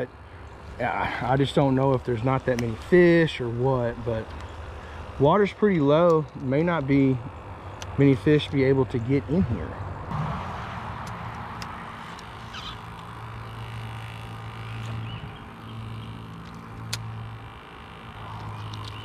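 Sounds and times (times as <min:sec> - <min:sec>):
steady low hum: 0:00.0 - 0:19.0
scattered clicks: 0:18.2 - 0:19.0.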